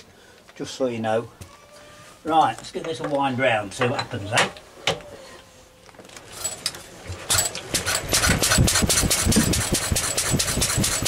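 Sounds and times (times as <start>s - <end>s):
stationary engine starting and running: 7.3s - 11.0s.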